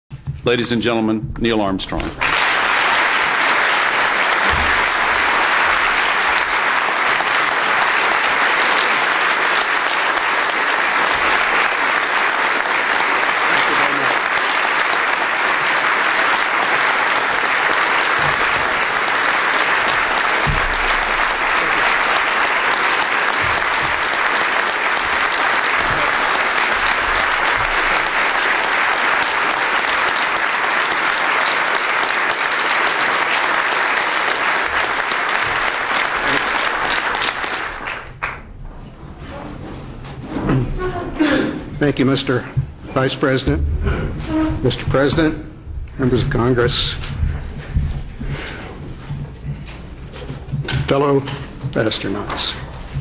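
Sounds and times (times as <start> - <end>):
audience applauding: 2.1 - 38.6.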